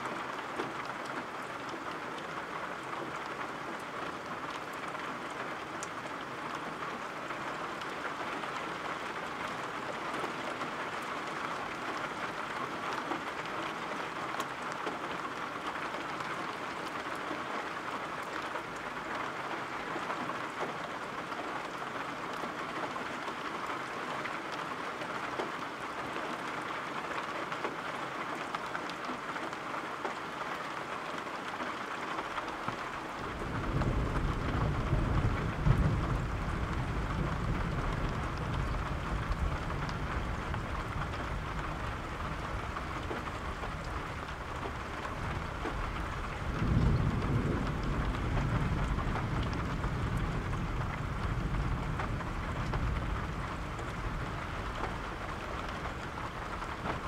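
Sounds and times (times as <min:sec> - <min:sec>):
steady rain falling: 0:00.0 - 0:57.0
low roll of thunder: 0:33.2 - 0:57.0.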